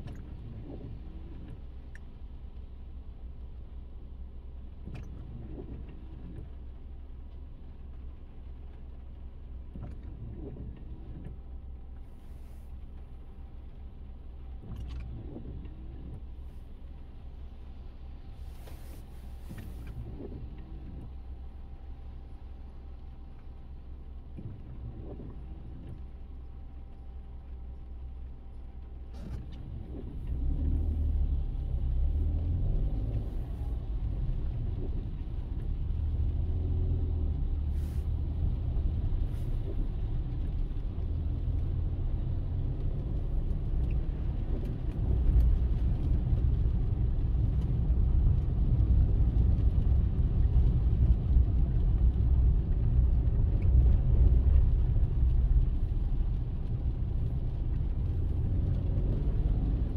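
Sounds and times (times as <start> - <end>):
car road and engine rumble: 0.0 - 59.9.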